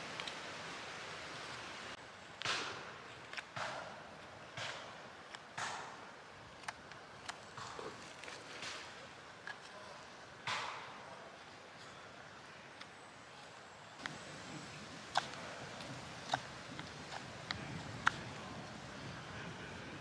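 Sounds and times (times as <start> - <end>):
knife shaving wood: 14.0 - 19.0.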